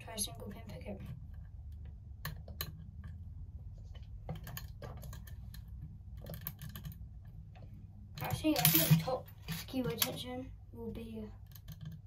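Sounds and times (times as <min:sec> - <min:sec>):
lock pick clicking and scraping: 0:04.2 - 0:10.2.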